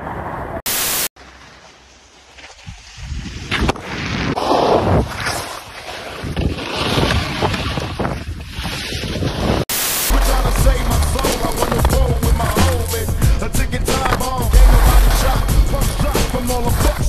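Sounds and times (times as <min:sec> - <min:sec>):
static hiss: 0:00.7 - 0:01.1, 0:09.7 - 0:10.4
skis scraping on snow: 0:01.3 - 0:07.8, 0:08.4 - 0:17.0
deep bass beat: 0:10.1 - 0:17.0.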